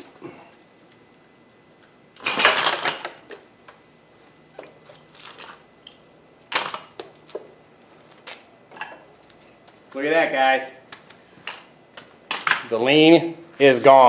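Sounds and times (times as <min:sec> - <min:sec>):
metal stand clanking and rattling: 0:02.2 - 0:03.2.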